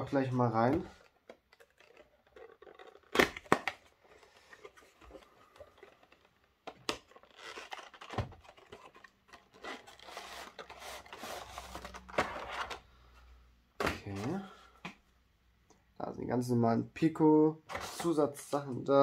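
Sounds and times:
cardboard and plastic rustling: 0.0 - 13.2.

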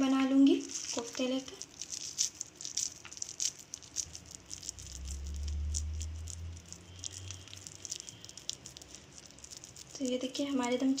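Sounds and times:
hands squelching meat: 0.5 - 10.1
low rumble: 3.9 - 8.9.

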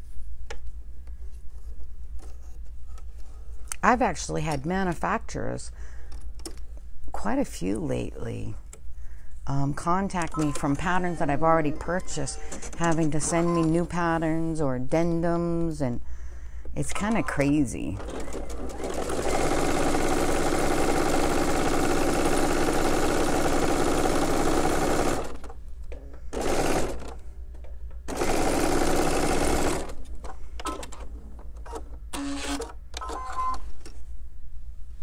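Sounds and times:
sewing machine stitching: 17.0 - 25.5, 26.4 - 27.2, 28.1 - 30.0, 31.6 - 33.6.

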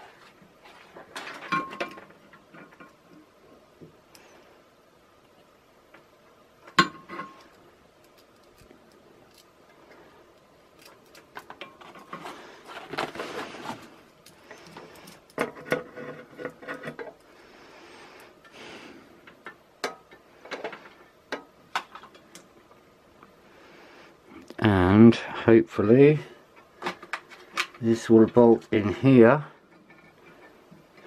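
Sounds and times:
rustling: 7.2 - 18.9.

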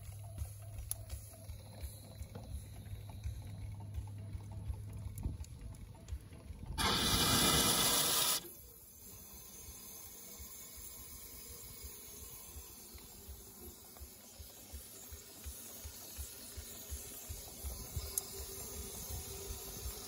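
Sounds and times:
steam hissing from a valve: 6.8 - 20.0.

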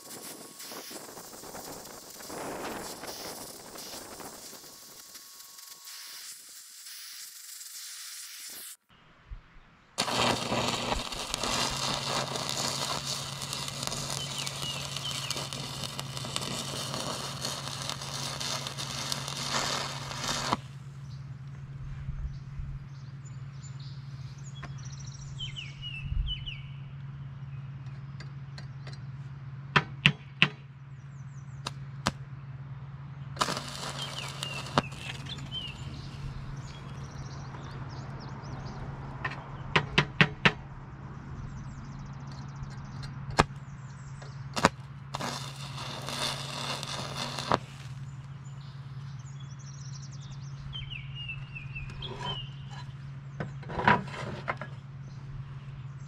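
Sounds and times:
arc welding crackle and hiss: 0.0 - 8.9, 10.0 - 21.0, 33.4 - 37.3, 44.4 - 49.2
birds chirping: 8.9 - 29.1, 33.4 - 39.9, 40.9 - 44.6, 45.2 - 53.8.

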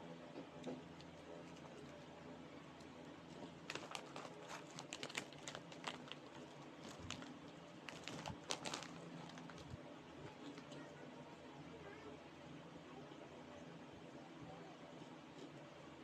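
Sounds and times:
plastic snack bag crinkling: 3.5 - 9.8.

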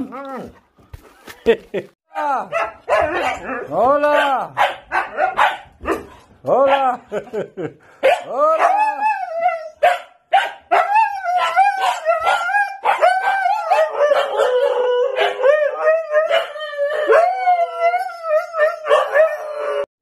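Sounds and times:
huskies howl-talking: 10.7 - 19.9.

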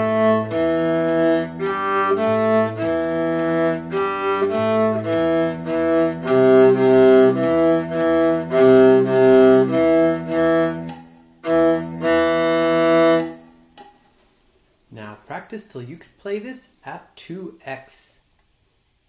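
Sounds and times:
viola bowed: 0.0 - 13.7
cello playback: 0.0 - 13.8.

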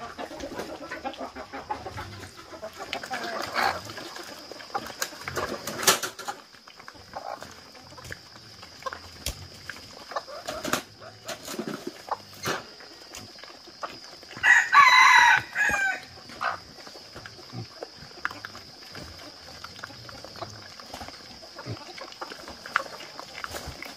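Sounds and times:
rooster crowing: 14.4 - 16.1.

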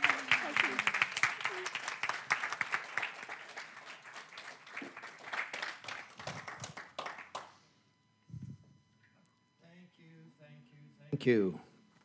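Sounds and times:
people clapping: 0.0 - 7.6.

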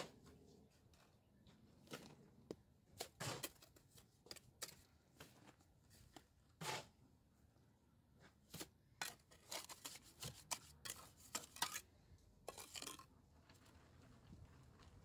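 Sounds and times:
trowel scraping and tapping stones: 2.0 - 5.3, 8.5 - 15.0.

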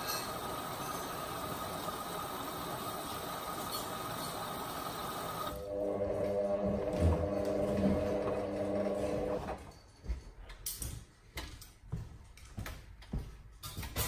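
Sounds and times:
washing machine drum humming: 0.0 - 9.6.

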